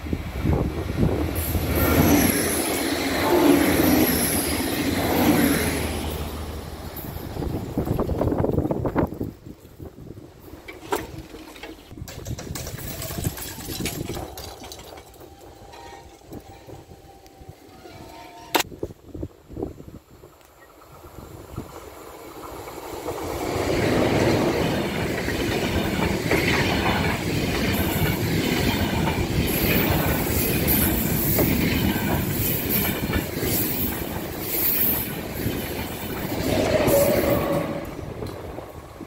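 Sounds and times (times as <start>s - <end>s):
electric train passing at speed: 0.0s - 11.6s, 14.0s - 39.0s
train wheels clattering over rails: 22.4s - 39.0s.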